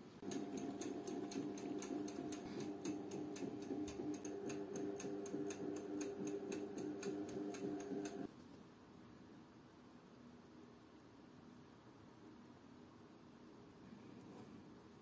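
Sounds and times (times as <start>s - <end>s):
steady electrical hum: 0.0s - 15.0s
sharp ticks: 0.2s - 8.3s.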